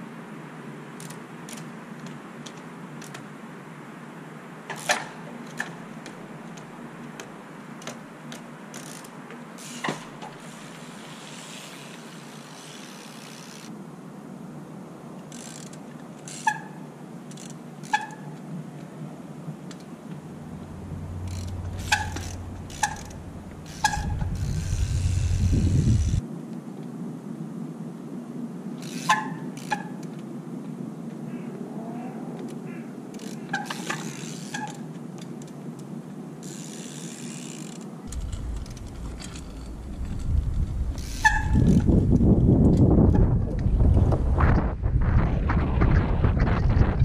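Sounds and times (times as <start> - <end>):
freewheel buzzing: 20.4 - 26.2, 36.4 - 42.4
low rumble: 20.4 - 26.2, 38.1 - 47.0.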